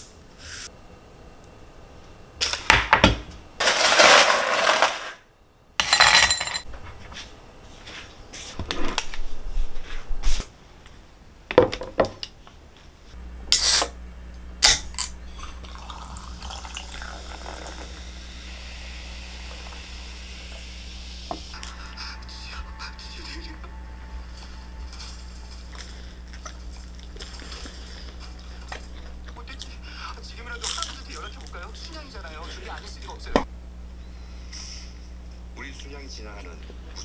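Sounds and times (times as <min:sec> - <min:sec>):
can hissing open: 0:13.5 - 0:14.0
cola fizzing in a glass: 0:15.4 - 0:18.1.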